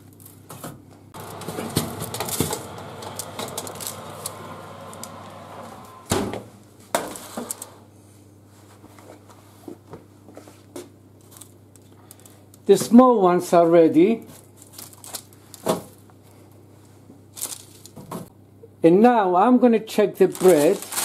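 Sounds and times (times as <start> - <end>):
oven rushing noise: 1.2 - 7.9.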